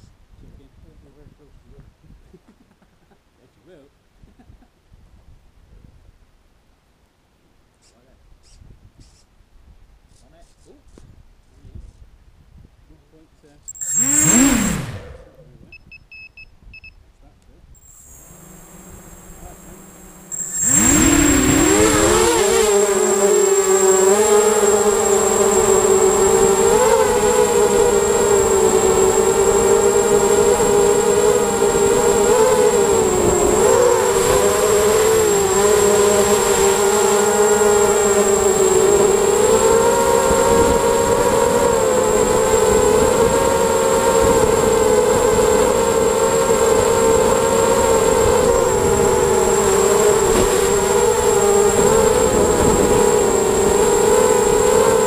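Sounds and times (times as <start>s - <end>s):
high-pitched whistle: 13.7s - 15.1s, 20.3s - 24.1s
drone motors whining: 13.7s - 15.9s, 17.8s - 55.0s.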